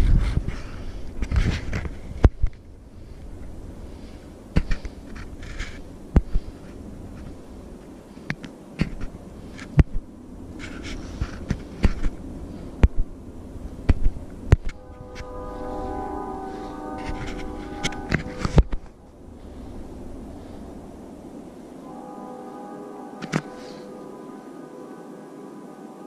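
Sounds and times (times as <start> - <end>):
low rumble: 9.0 - 24.8.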